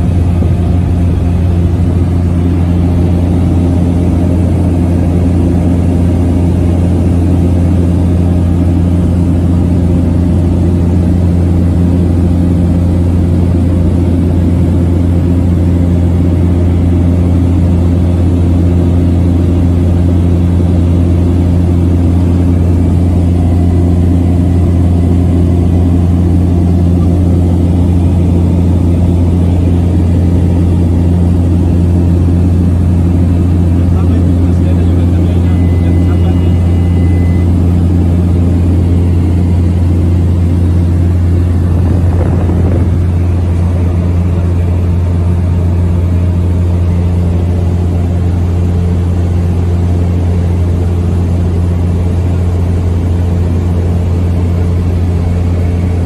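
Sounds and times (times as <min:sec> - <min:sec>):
propeller aircraft engine drone: 0:00.0 - 0:56.0.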